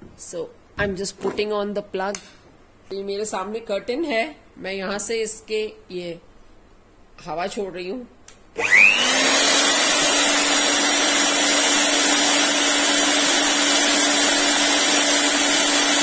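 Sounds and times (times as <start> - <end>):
air blower motor whine: 8.6 - 16.0.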